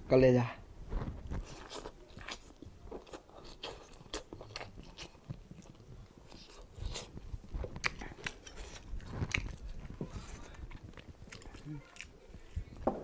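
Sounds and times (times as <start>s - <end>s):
person chewing meat: 1.3s - 12.8s.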